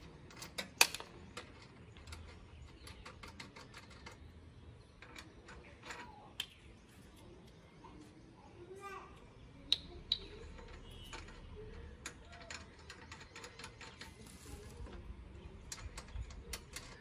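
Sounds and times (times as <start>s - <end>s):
small metallic clicks and ticks: 0.0s - 6.6s, 9.7s - 17.0s.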